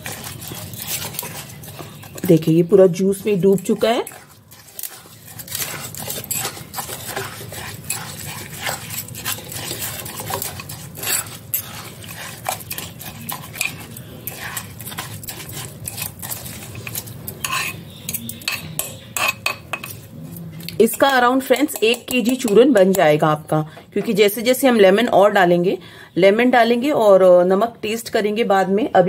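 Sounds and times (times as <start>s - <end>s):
metal spoon scraping ceramic jar: 0.0s - 20.1s, 20.8s - 23.1s
wet mixture churning: 0.0s - 20.1s.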